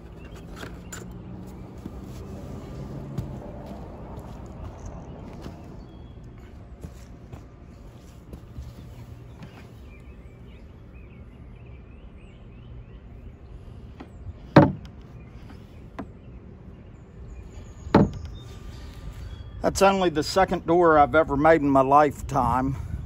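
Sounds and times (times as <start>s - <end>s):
wooden door knocking shut: 14.6s - 14.8s, 18.0s - 18.2s.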